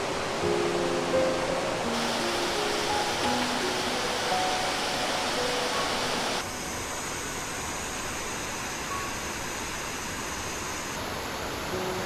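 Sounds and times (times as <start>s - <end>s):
background music: 0.0s - 6.6s
waterfall rushing over rocks: 0.0s - 12.0s.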